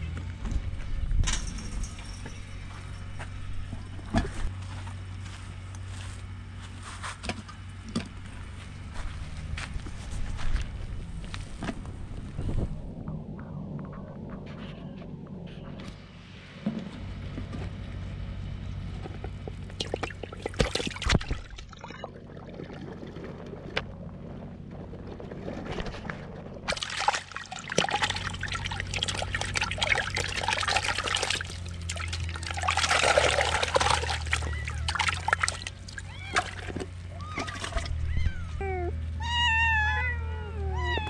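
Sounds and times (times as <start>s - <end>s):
low steady hum: 0.0s - 41.0s
water splashing in plastic tub: 19.5s - 23.8s, 26.6s - 38.0s.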